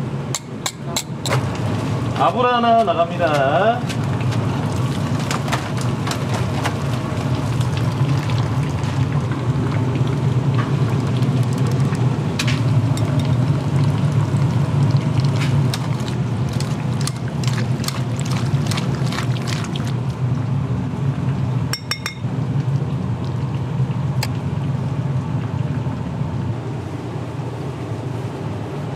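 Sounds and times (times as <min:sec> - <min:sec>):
low kitchen rumble: 0:00.0 - 0:28.9
water splashing: 0:14.8 - 0:20.0.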